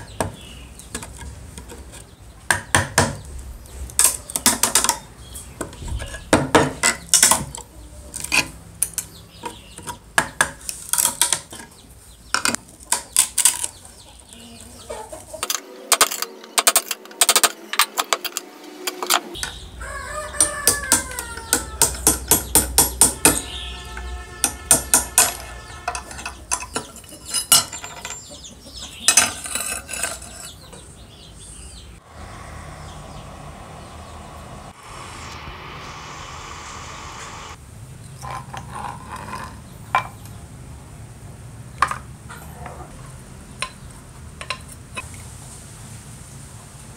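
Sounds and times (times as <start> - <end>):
rooster crowing: 19.3 - 22.3, 32.0 - 35.6.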